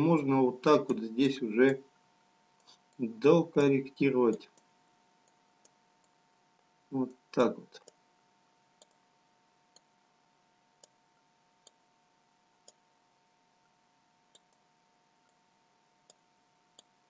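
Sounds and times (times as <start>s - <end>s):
faint steady tone: 0.0s - 17.0s
computer mouse clicks: 4.3s - 6.2s, 7.8s - 8.0s, 8.8s - 9.1s, 9.7s - 9.9s, 10.8s - 11.8s, 12.6s - 12.8s, 14.3s - 15.4s, 16.0s - 17.0s.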